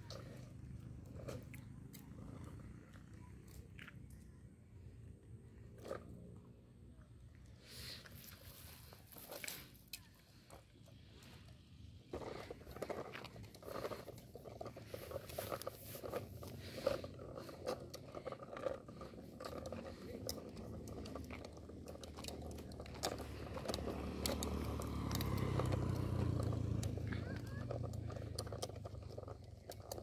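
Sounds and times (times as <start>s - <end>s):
plastic wheels rolling on asphalt: 0.0s - 30.0s
motorcycle engine humming: 6.4s - 30.0s.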